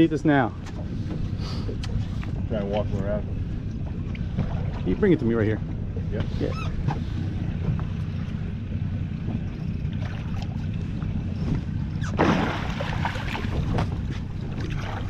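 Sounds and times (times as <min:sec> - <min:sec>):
wind and water rumble: 0:00.0 - 0:15.0
fish thrashing and splashing: 0:11.6 - 0:15.0.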